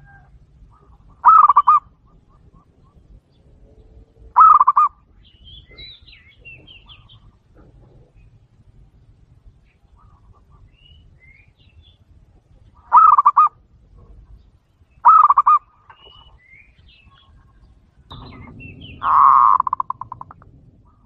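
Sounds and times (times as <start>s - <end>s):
dove cooing: 0.0s - 3.3s, 4.3s - 5.0s, 12.8s - 14.3s, 15.0s - 16.3s, 17.5s - 21.0s
small birds chirping: 0.1s - 21.0s.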